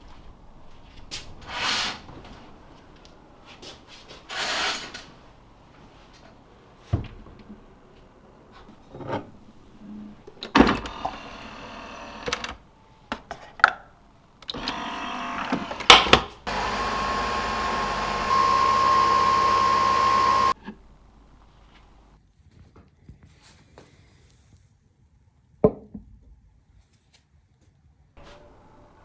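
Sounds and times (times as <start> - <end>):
coffee machine motor whir: 10.7 - 12.6, 14.5 - 20.6.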